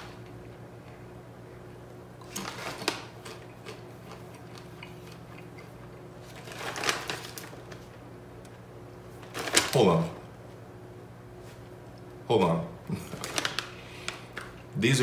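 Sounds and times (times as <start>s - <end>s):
steady low hum: 0.0s - 15.0s
crunching chips: 2.2s - 8.0s, 9.1s - 10.1s, 12.9s - 14.7s
faint chewing clicks: 2.8s - 6.1s.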